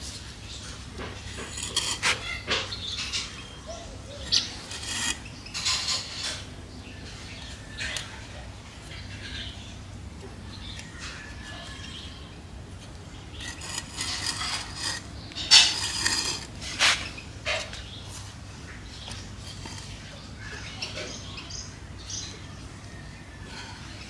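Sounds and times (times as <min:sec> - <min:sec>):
hands scraping and crumbling soil: 0:00.0 - 0:06.5, 0:13.4 - 0:21.0.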